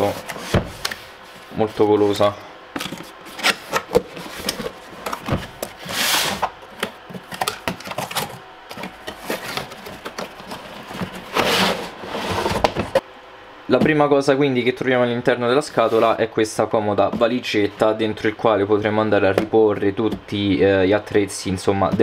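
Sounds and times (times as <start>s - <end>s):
plastic case sliding out of box: 7.3s - 13.0s.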